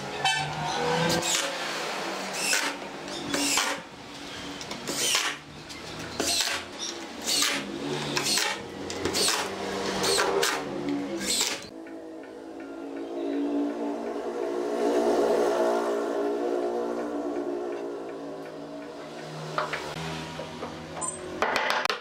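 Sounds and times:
impact driver driving screws into wood: 0:02.4 - 0:03.8, 0:04.8 - 0:05.4, 0:06.1 - 0:11.7.

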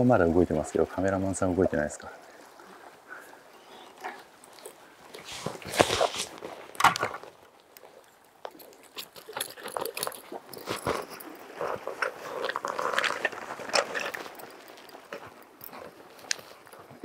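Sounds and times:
clicks and rustle of handling: 0:04.0 - 0:17.0.

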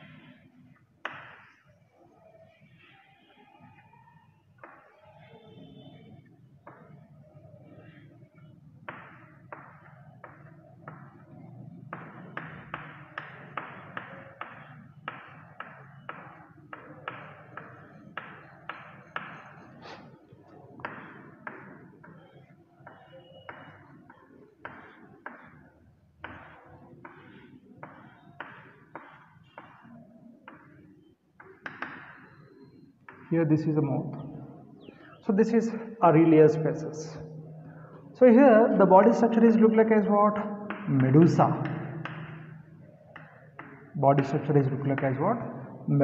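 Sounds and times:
chalk tapping and scratching: 0:08.8 - 0:20.2, 0:20.8 - 0:30.8, 0:40.7 - 0:42.5.

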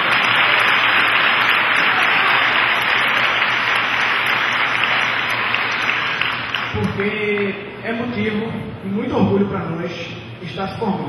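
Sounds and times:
large audience applauding: 0:00.0 - 0:07.6.

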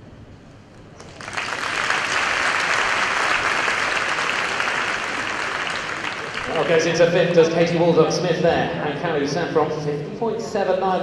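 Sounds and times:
crowd applauding: 0:01.0 - 0:07.2.

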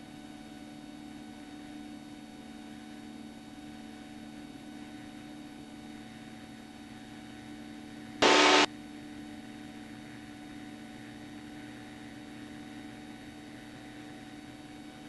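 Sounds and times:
radio static burst: 0:08.2 - 0:08.7.

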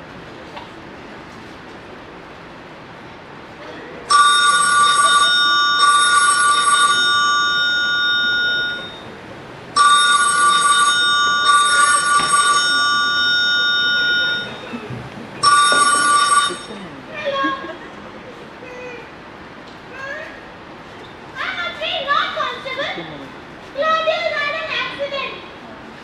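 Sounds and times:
telephone ringing: 0:04.1 - 0:09.1, 0:09.8 - 0:14.8, 0:15.4 - 0:16.9.

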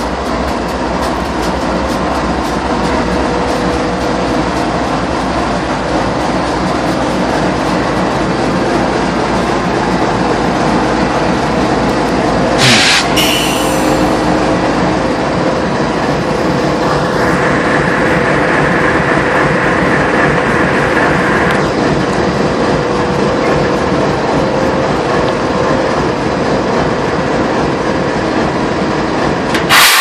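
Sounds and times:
diesel locomotive idling: 0:00.0 - 0:30.0
compressed air hiss: 0:12.6 - 0:14.0, 0:29.7 - 0:30.0.

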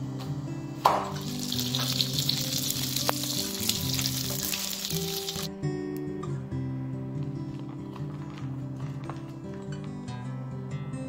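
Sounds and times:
background music: 0:00.0 - 0:11.0
grubs sizzling in hot oil: 0:01.1 - 0:05.5.

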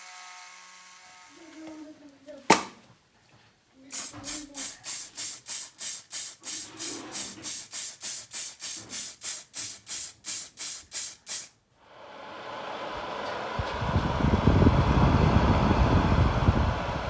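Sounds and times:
spray hissing in short bursts: 0:03.9 - 0:11.6
steady rushing noise: 0:12.9 - 0:17.0.

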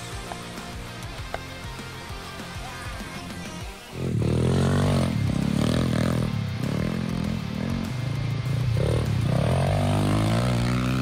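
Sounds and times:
dirt bike engine revving: 0:02.6 - 0:11.0.

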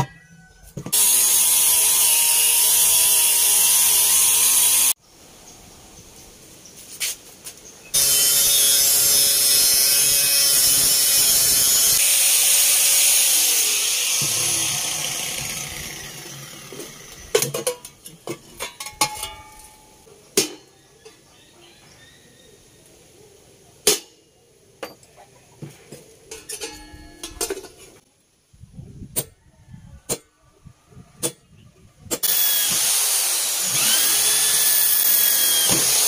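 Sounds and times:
power tool motor running: 0:00.9 - 0:05.0, 0:08.0 - 0:17.3, 0:32.2 - 0:36.0
steel tools clinking: 0:17.4 - 0:20.0, 0:26.2 - 0:27.9.

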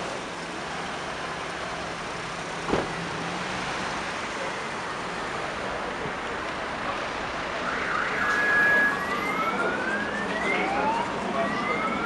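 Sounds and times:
street traffic noise: 0:00.0 - 0:12.0
emergency vehicle siren wailing: 0:07.4 - 0:12.0.

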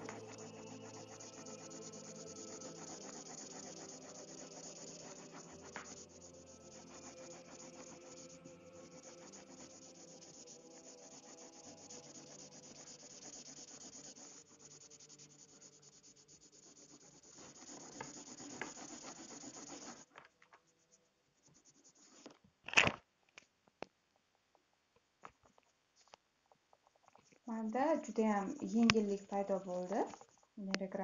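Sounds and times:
marker scratching on paper: 0:00.0 - 0:20.1, 0:20.8 - 0:22.3, 0:27.5 - 0:30.4.

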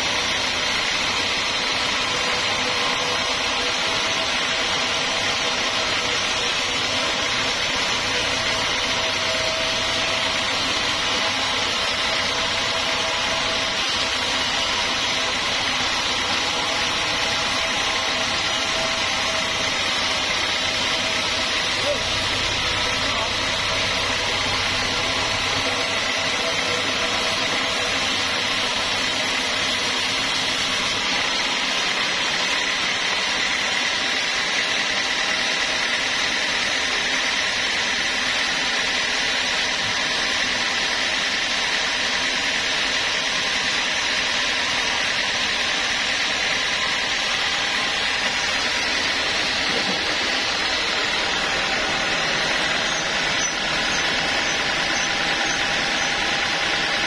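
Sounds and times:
band saw cutting log: 0:00.0 - 0:57.0
high-pitched saw tone: 0:02.0 - 0:29.6, 0:47.5 - 0:57.0.

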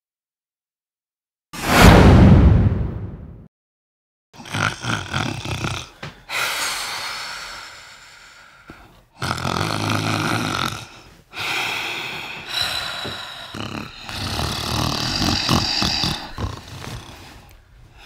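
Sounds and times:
person snoring loudly: 0:04.4 - 0:08.3, 0:09.1 - 0:18.0.

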